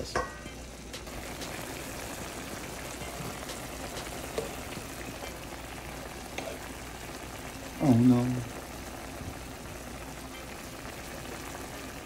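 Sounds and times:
sauce bubbling and sizzling: 0.0s - 12.0s.

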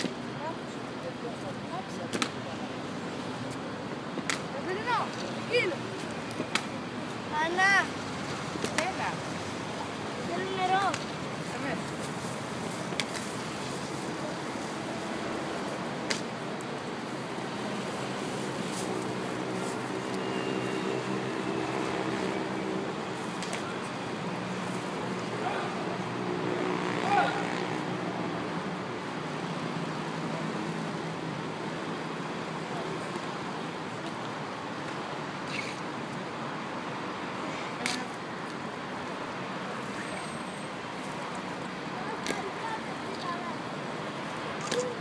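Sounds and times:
city traffic noise: 0.0s - 45.0s.

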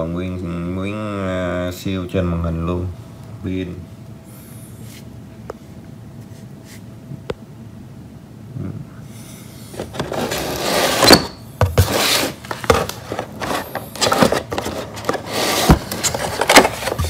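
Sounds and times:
plastic tray scraping cardboard box: 9.7s - 17.0s.

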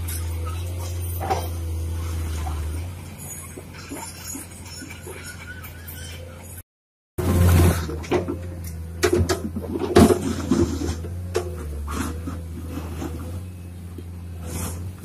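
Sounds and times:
bucket scraping asphalt and soil: 0.0s - 5.6s, 7.2s - 15.0s
excavator diesel engine running: 0.0s - 6.6s, 7.2s - 15.0s
sharp knocks and clatters: 7.9s - 12.2s.

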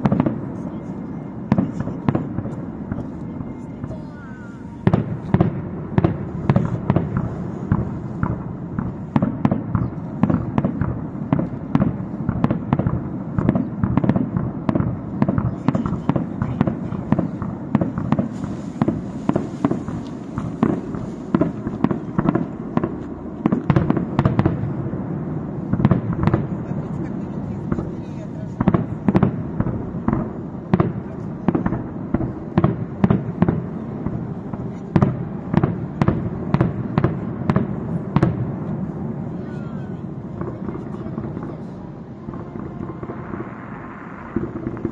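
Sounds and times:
fireworks bursting: 0.0s - 44.9s
low rumble: 0.0s - 44.9s.

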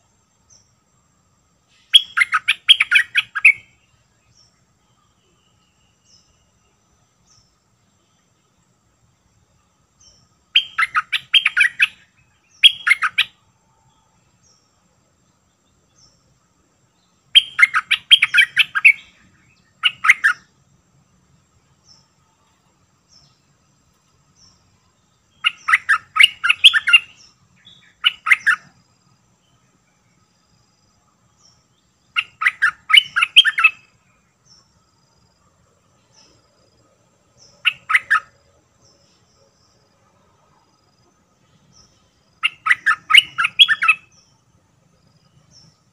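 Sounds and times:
faint chirps of other birds: 0.0s - 45.9s
bulbul song: 1.6s - 8.6s, 9.9s - 13.4s, 17.0s - 20.7s, 23.0s - 28.8s, 31.3s - 34.7s, 37.4s - 39.3s, 41.4s - 45.9s.

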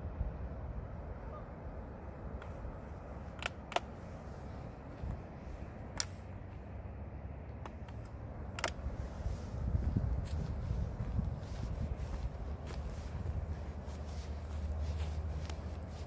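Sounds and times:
sharp clicks: 3.3s - 4.0s, 5.9s - 6.3s, 7.5s - 8.8s
wind buffeting microphone: 4.0s - 5.8s, 8.6s - 16.0s.

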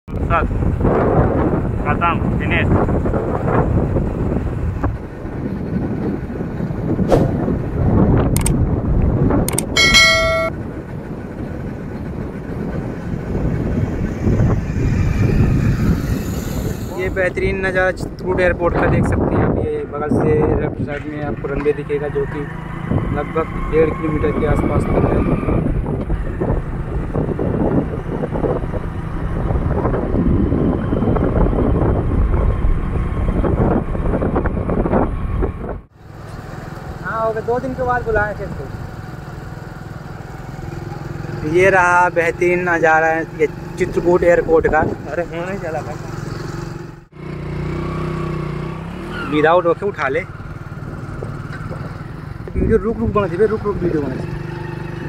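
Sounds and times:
vehicle road and wind rumble: 0.0s - 55.0s
click: 8.3s - 9.7s
short electronic tone: 9.8s - 10.6s.

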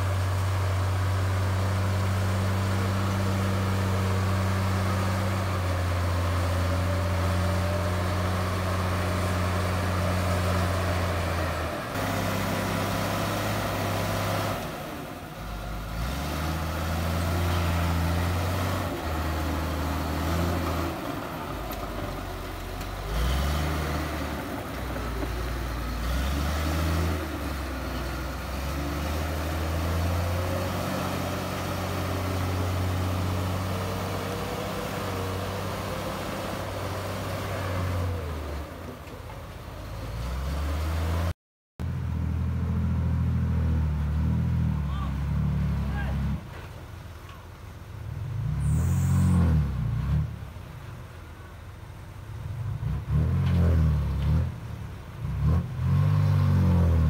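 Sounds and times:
bulldozer diesel engine running: 0.0s - 40.2s.

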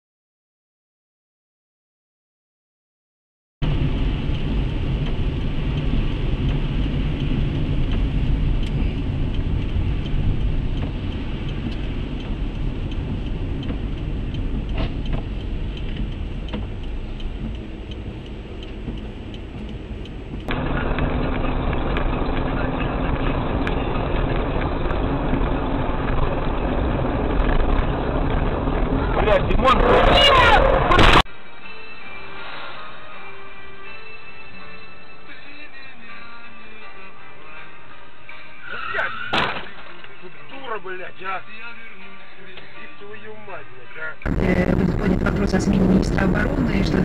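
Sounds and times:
dull in-car drone: 3.6s - 31.2s, 44.3s - 47.0s
engine and tyre noise on wet road: 3.6s - 31.5s, 44.3s - 47.0s.

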